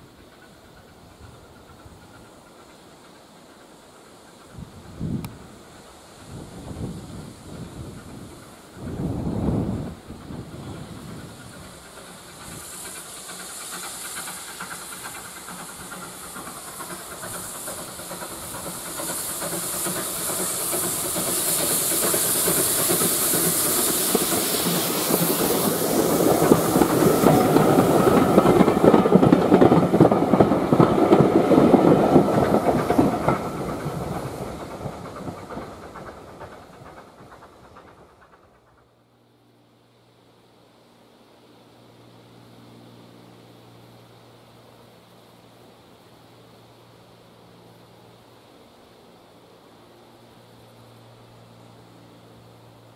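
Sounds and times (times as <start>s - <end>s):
train wheels clattering over rail joints: 0.0s - 39.4s
steam locomotive hissing: 0.0s - 52.9s.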